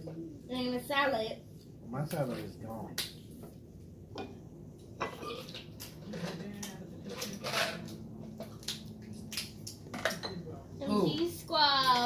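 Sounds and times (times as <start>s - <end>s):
plates and utensils clinking: 5.0s - 8.5s.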